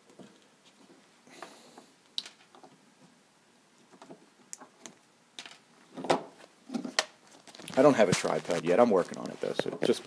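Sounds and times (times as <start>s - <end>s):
rustle of handling: 6.4s - 10.0s.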